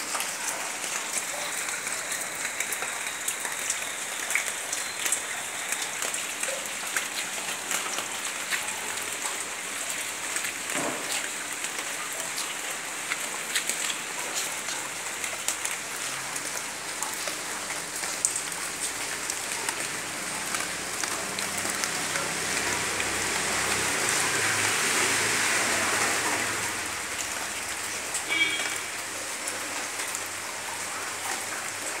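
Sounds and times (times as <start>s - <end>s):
heavy rain falling: 0.0s - 32.0s
single raindrops ticking: 26.3s - 30.4s.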